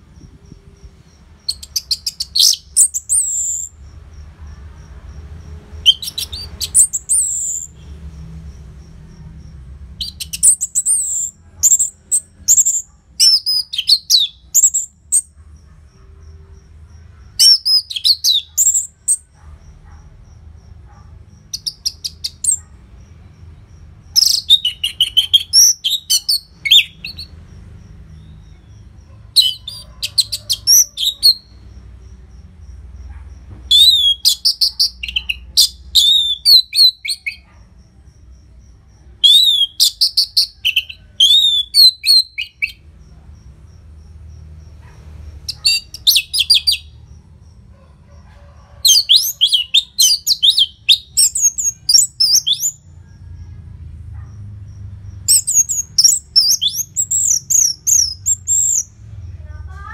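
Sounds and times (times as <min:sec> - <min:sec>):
thrush singing whistled notes: 0:00.8 - 0:03.8, 0:05.8 - 0:07.9, 0:33.7 - 0:37.4, 0:39.2 - 0:42.8, 0:55.3 - 0:58.9.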